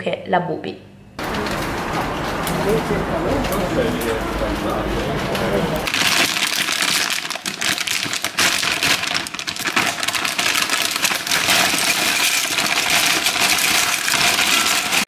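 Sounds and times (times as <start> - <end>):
plastic chip bag crinkling: 5.8 - 15.0
chips clattering into a bowl: 5.9 - 15.0.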